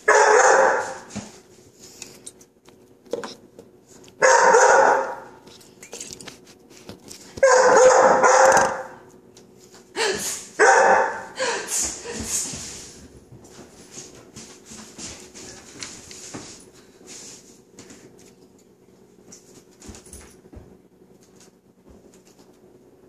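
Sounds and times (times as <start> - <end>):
puppy barking: 0.0 - 1.1, 4.2 - 5.4, 7.4 - 9.0, 10.6 - 11.4.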